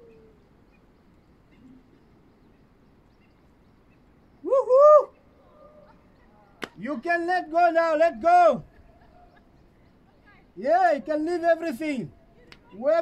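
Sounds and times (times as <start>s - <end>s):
loud rising wavering call: 4.4s - 5.8s.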